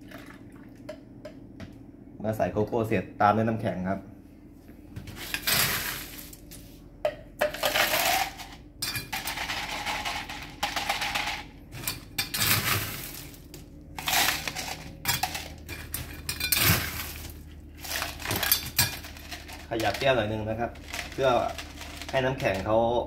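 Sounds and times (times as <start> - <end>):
ice cubes scooped from bin: 5.2 - 6.6, 12.4 - 15.4, 16.6 - 20.1
ice clattering into plastic cup: 7.5 - 22.4.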